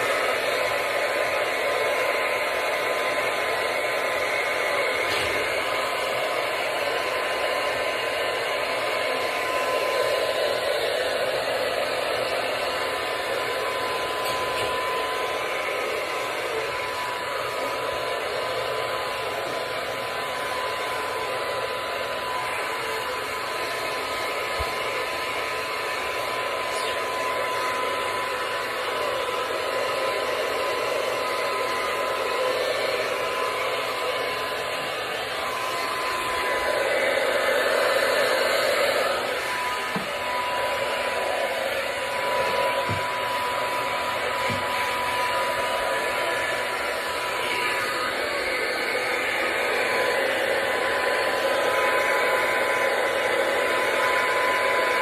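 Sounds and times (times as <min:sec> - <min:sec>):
hair dryer blowing: 0:00.0 - 0:55.0.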